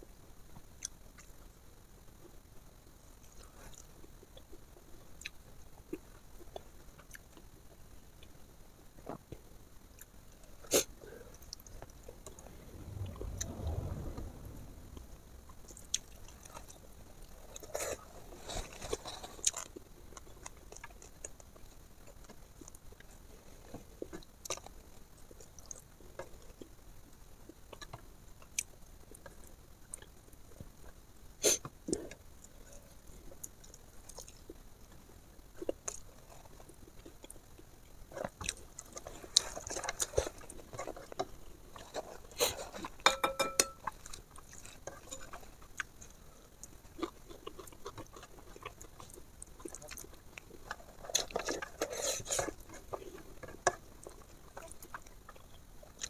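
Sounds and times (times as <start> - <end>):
chewing and mouth smacks: 33.3 - 34.6, 43.8 - 56.0.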